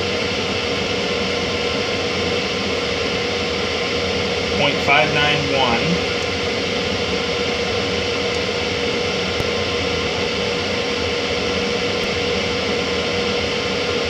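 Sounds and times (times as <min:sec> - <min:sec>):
machine hissing and humming: 0:00.0 - 0:14.0.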